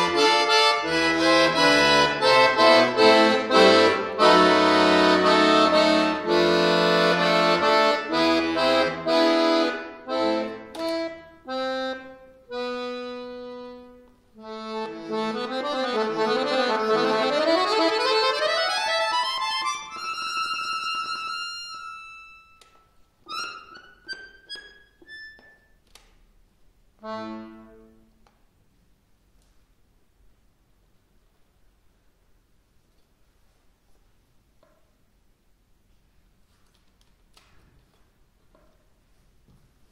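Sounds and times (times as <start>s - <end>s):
button accordion classical piece: 0.0s - 25.2s, 27.0s - 28.2s.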